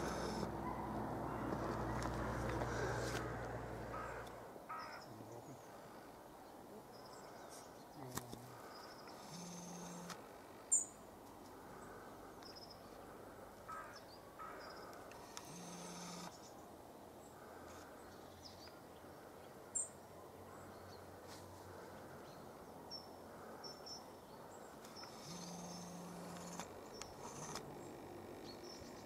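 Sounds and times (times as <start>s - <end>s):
crows cawing: 0.0s - 5.9s, 13.6s - 15.1s
small birds chirping: 3.9s - 11.0s, 11.7s - 21.1s, 21.7s - 29.0s.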